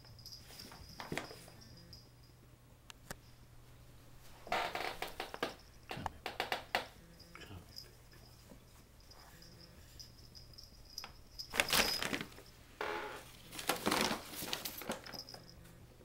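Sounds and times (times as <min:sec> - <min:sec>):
paper bag crinkling and rustling: 0:11.4 - 0:12.5, 0:13.3 - 0:15.3.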